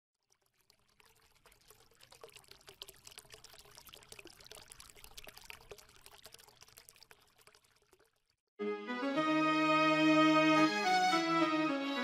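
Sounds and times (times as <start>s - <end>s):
faint trickling water drips: 0.2s - 8.4s.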